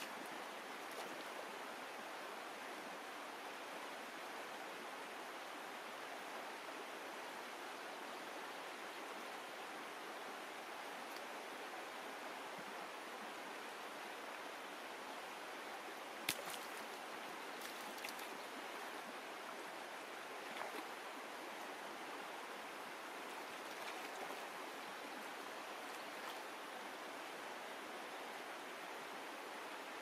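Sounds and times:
stream rushing over stones: 4.9s - 30.0s
small splashes: 16.2s - 18.4s, 23.4s - 24.4s.

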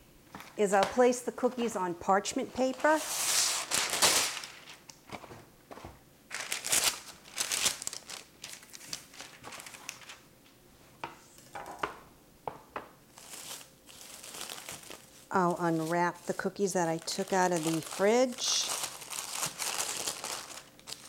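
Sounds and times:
parchment paper crinkling: 2.7s - 5.4s, 6.3s - 10.2s, 13.2s - 21.0s.

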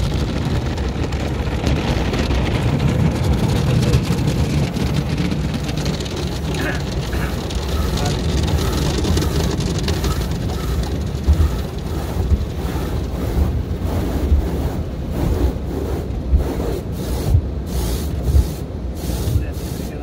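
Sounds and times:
spinning wash brushes: 3.9s - 20.0s
brushes thumping car body: 5.0s - 20.0s
water spray: 10.0s - 20.0s.

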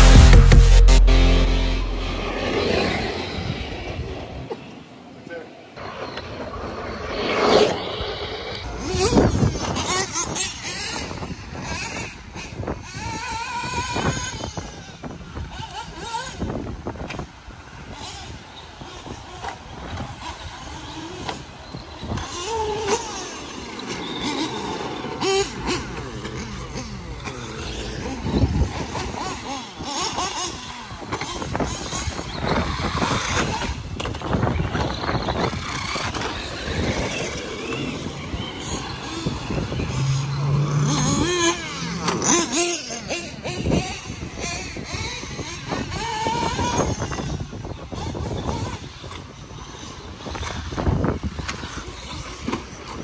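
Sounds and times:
radio-controlled car motors whining: 5.3s - 53.0s
tyres on dirt: 17.1s - 47.2s.

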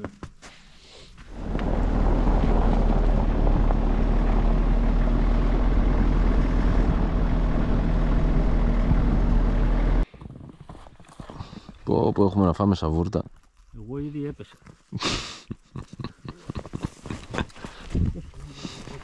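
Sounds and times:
car engine and road rumble: 1.2s - 10.1s.

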